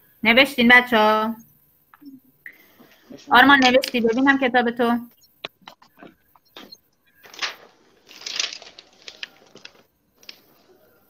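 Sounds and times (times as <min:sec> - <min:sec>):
paper rustling: 0:05.7 - 0:11.0.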